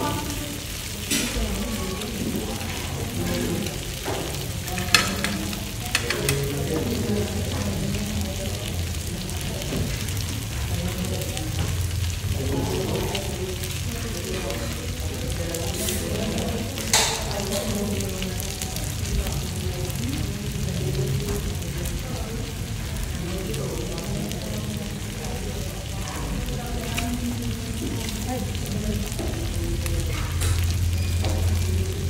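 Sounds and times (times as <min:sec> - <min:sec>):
meat sizzling on grill pan: 0:00.0 - 0:32.0.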